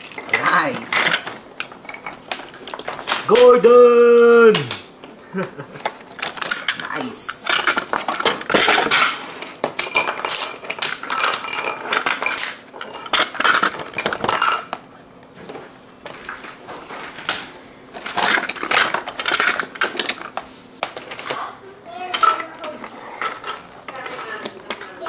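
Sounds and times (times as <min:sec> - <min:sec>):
wooden toy trains clattering: 0:00.0 - 0:03.6, 0:05.8 - 0:14.8, 0:18.0 - 0:21.4, 0:22.0 - 0:25.0.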